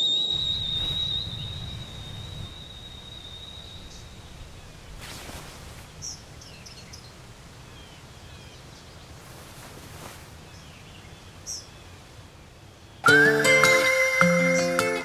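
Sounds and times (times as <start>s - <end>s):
short high chirp: 0.0s - 5.3s
small bird chirps: 0.0s - 9.1s
soft whoosh: 0.3s - 8.0s
low steady rumble: 0.3s - 8.9s.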